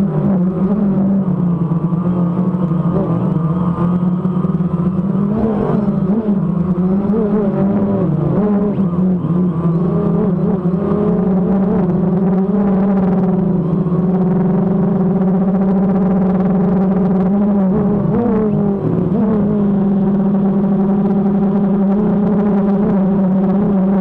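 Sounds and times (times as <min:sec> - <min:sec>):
drone propellers humming: 0:00.0 - 0:24.0.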